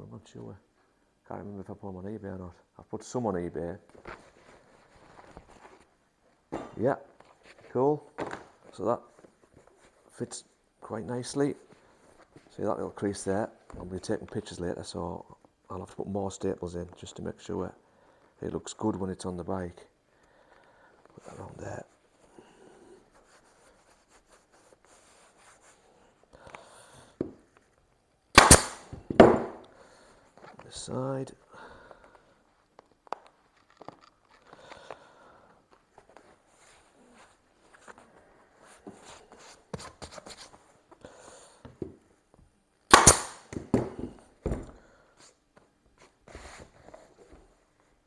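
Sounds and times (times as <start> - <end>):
fabric rubbing: 23.1 - 26.2
loud snaps: 28.4 - 28.9, 42.9 - 43.6
staple gun firing: 28.4 - 28.9, 42.9 - 43.6.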